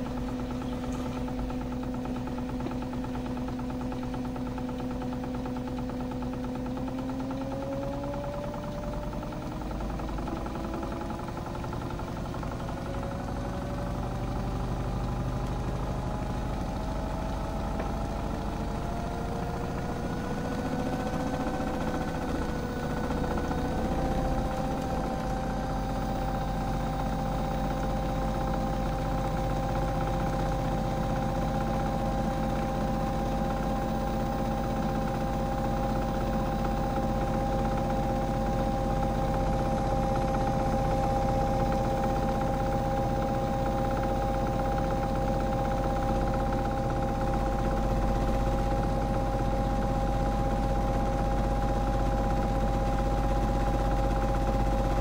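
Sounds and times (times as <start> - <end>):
washing machine motor whine: 0.0 - 55.0.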